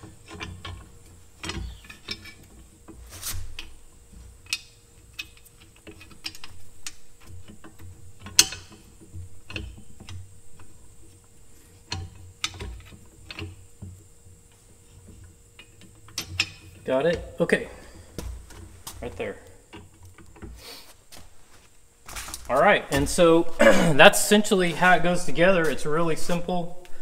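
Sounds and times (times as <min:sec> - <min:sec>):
metal parts clicking and knocking: 0:00.0 - 0:03.8, 0:04.4 - 0:10.7, 0:11.9 - 0:13.6, 0:15.6 - 0:16.9.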